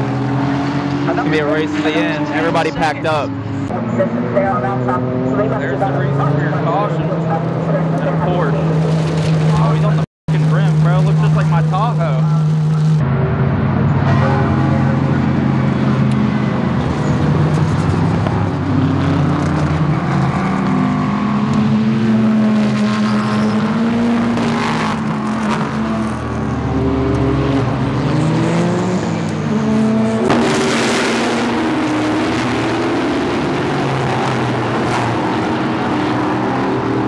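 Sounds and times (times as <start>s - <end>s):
race cars passing at speed: 0.0s - 37.0s.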